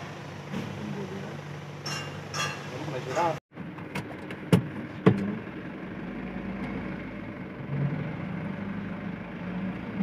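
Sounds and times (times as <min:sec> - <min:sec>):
diesel truck engine running: 0:00.0 - 0:10.0.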